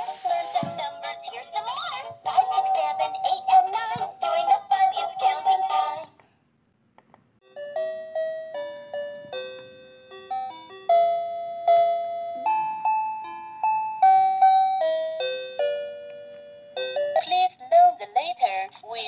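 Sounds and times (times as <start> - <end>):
toy laptop chime melody: 7.5 - 17.3.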